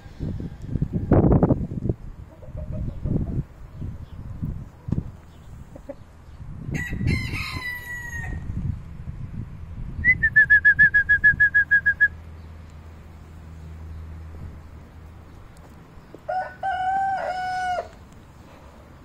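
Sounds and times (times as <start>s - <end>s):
rooster crowing: 6.7s - 8.5s, 16.3s - 18.0s.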